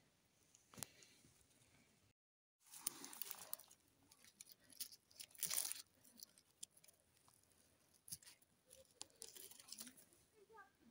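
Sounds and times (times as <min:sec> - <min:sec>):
dry leaves and twigs rustling: 0:02.6 - 0:10.2.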